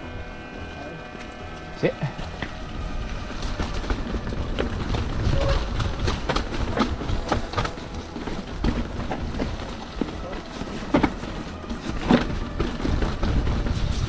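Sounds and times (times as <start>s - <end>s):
low rumble: 0.0s - 10.3s
bike tyres rolling over rock: 0.3s - 14.0s
bike knocking and rattling: 0.4s - 14.0s.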